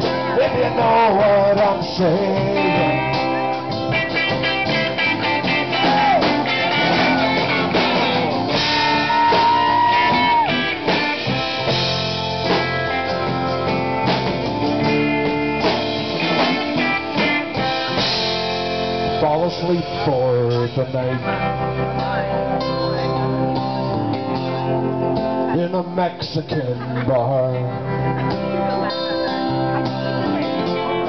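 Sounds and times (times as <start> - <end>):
drum kit: 0.0 - 27.0
electric bass: 0.0 - 31.0
electric guitar lead: 0.0 - 31.0.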